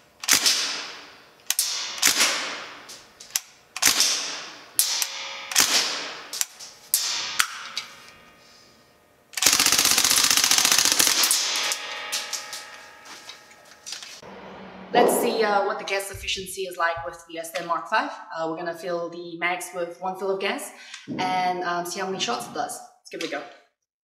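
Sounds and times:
airsoft gun firing: 0.2s - 2.9s, 3.8s - 7.8s, 9.4s - 12.7s.

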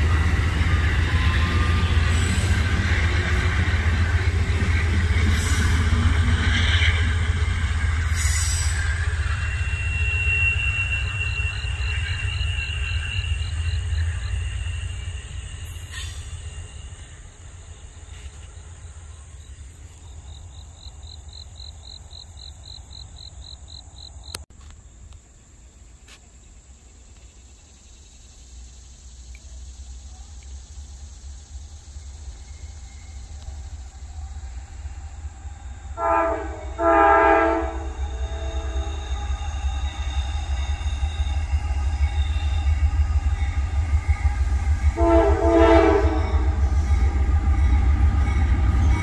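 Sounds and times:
high wheel squeal: 0.0s - 18.5s, 34.5s - 45.0s
train wheels rumbling on track: 0.0s - 24.6s, 27.2s - 49.0s
insects chirping: 0.0s - 49.0s.

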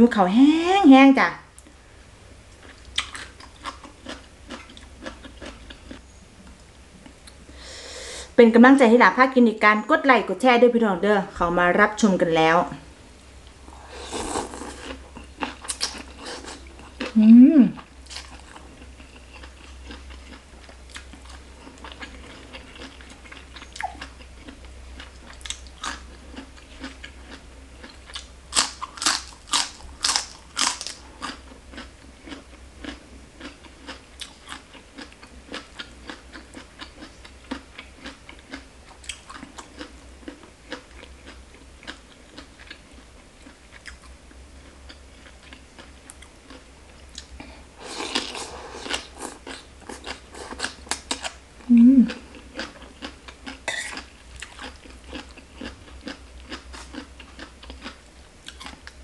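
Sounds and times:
wet chewing: 2.5s - 6.0s, 14.2s - 17.2s, 18.0s - 42.8s, 44.9s - 51.4s, 52.1s - 59.0s.

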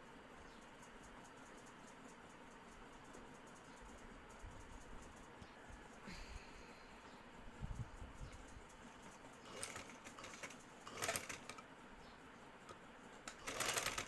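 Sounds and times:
sewing machine stitching: 9.4s - 11.6s, 13.3s - 14.0s.

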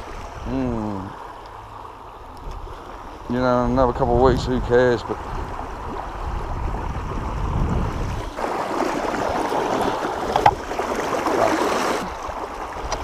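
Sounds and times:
low microphone rumble: 2.2s - 8.4s
creek water rushing over rocks: 5.0s - 13.0s.

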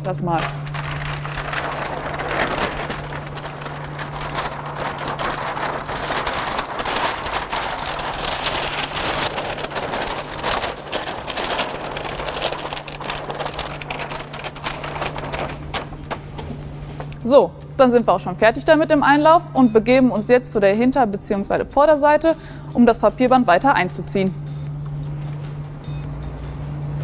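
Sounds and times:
steady low hum: 0.0s - 27.0s
paper rustling and crackling: 0.3s - 17.2s.

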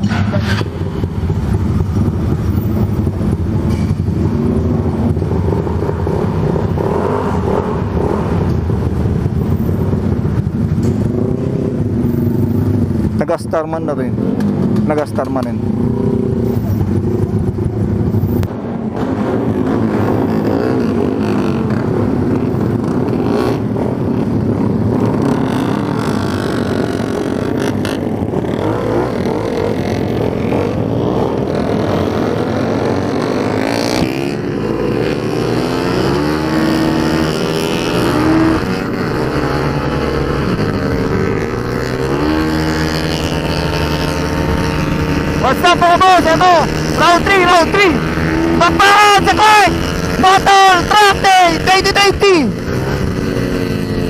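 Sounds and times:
scooter engine revving: 19.3s - 54.0s.

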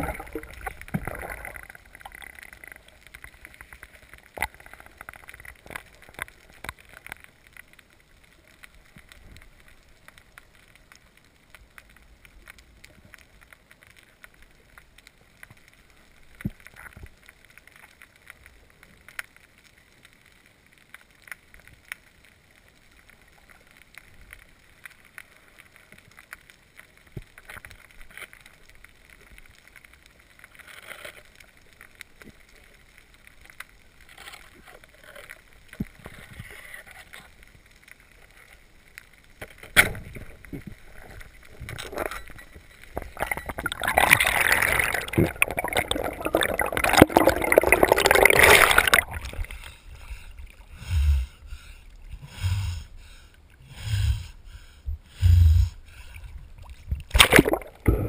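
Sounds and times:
rush of water and bubbles: 0.0s - 22.2s, 39.5s - 58.0s
faint underwater crackle: 0.0s - 58.0s
waves splashing against camera: 39.7s - 53.3s, 55.9s - 58.0s.

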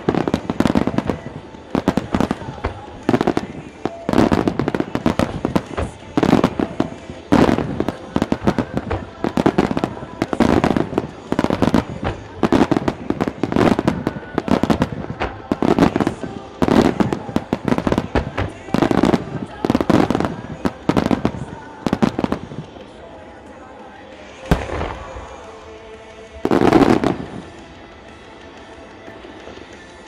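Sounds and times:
firework booms: 0.0s - 22.7s, 24.5s - 25.5s
firework crackling and popping: 0.0s - 30.0s.

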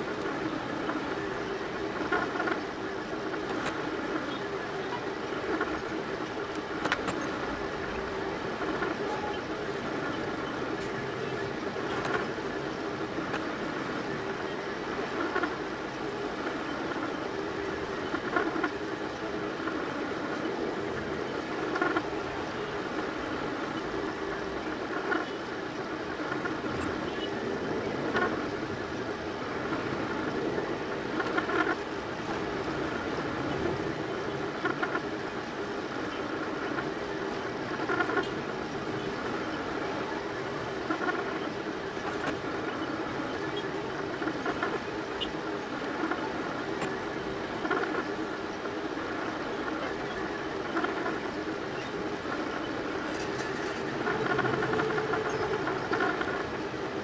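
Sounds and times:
three d printer motors humming: 0.0s - 57.0s.

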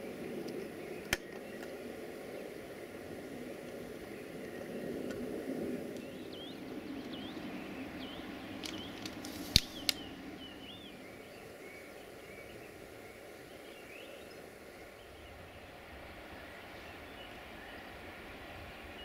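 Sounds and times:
small birds chirping: 0.0s - 19.0s
sharp clicks: 8.6s - 10.1s.

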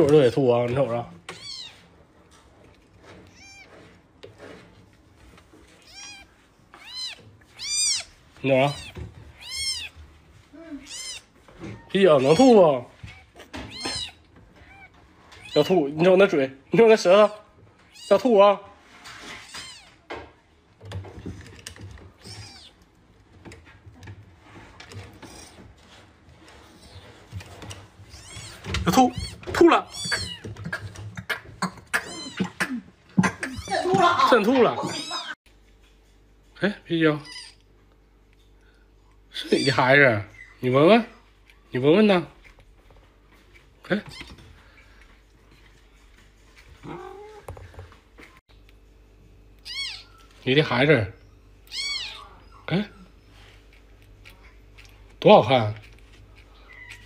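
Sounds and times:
kitten mewing: 1.3s - 1.8s, 5.8s - 15.7s, 19.4s - 20.0s, 22.2s - 22.8s, 28.1s - 35.4s, 37.2s - 37.6s, 49.6s - 50.3s, 51.7s - 53.0s
adult cat yowling: 5.8s - 10.0s, 10.6s - 15.7s, 22.2s - 22.8s, 28.1s - 30.5s, 32.0s - 32.6s, 49.6s - 50.3s, 51.7s - 53.1s.

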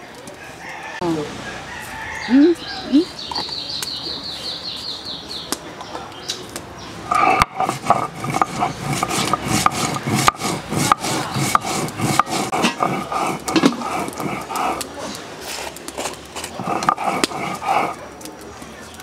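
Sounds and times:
stone rasping on stone: 7.1s - 18.0s.

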